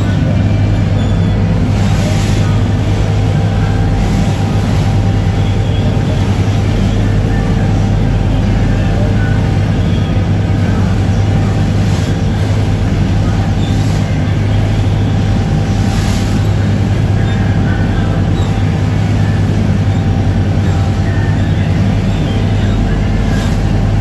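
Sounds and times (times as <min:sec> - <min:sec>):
boat engine droning: 0:00.0 - 0:24.0.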